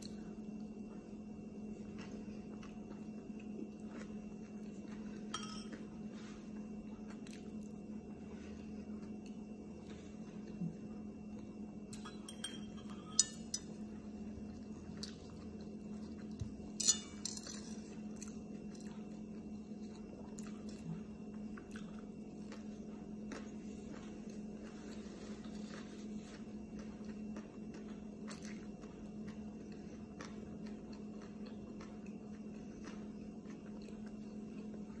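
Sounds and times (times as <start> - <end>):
person chewing: 1.7 - 11.5, 13.8 - 16.8, 17.8 - 35.0
dishes clinking: 5.3 - 5.8, 11.9 - 13.8, 16.8 - 17.8.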